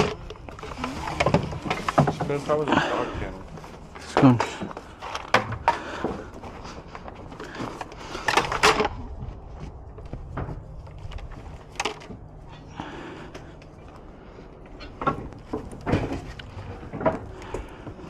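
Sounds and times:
junk knocking and clattering: 0.0s - 9.3s, 14.7s - 18.0s.

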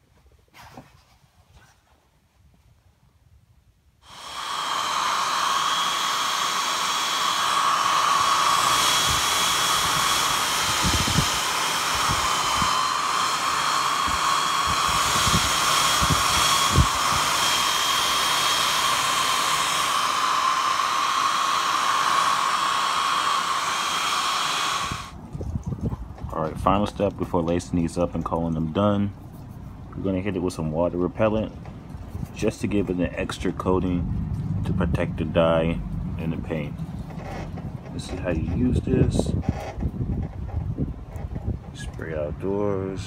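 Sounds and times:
hot-air blower whining: 4.0s - 25.2s.

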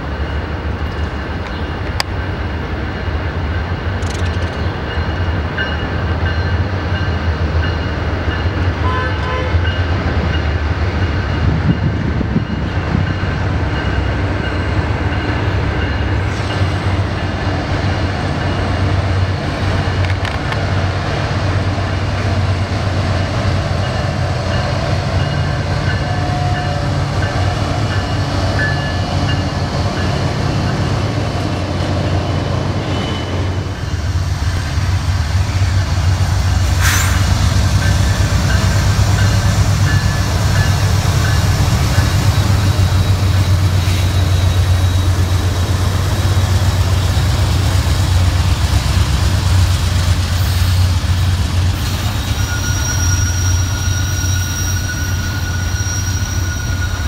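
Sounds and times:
freight train rumbling past: 0.0s - 57.0s
high wheel squeal: 36.8s - 45.4s, 50.4s - 57.0s.

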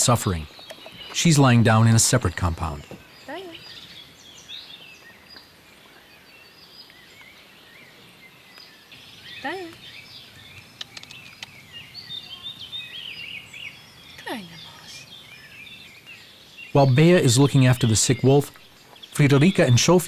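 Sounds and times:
songbirds chirping: 0.0s - 20.0s
faint clicks: 10.6s - 11.7s.

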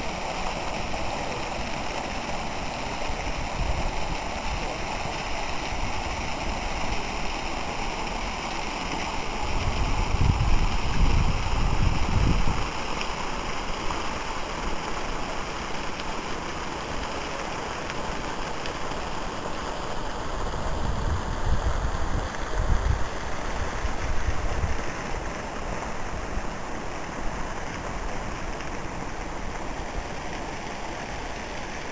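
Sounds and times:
steady rushing hiss: 0.0s - 31.9s
wind buffeting microphone: 9.5s - 12.7s, 20.6s - 24.9s.

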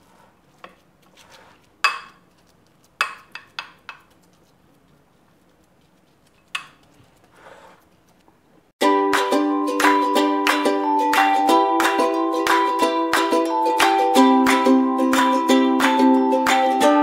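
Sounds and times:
ukulele music: 8.8s - 17.0s.

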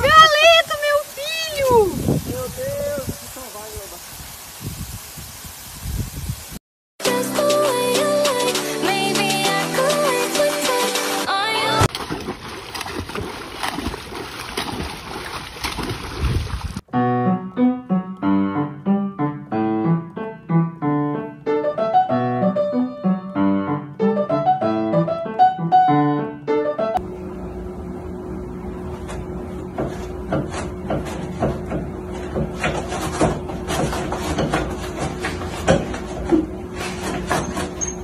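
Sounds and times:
water splashing: 9.8s - 16.9s
piano melody: 16.9s - 27.7s.

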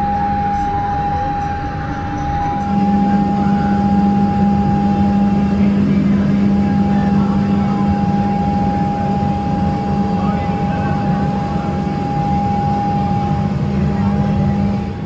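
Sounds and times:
high steady whine: 0.0s - 15.0s
low drone: 0.0s - 15.0s.

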